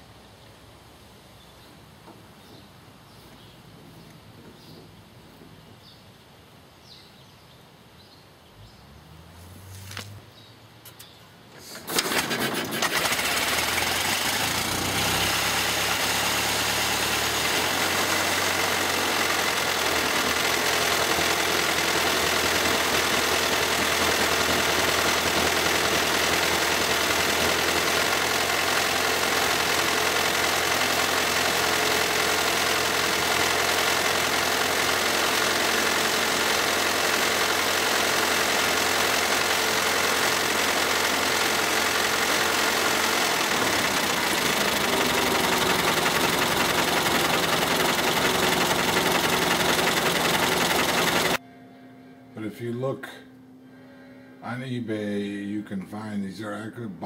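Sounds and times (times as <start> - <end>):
old car engine starting and idling: 11.5 - 51.4.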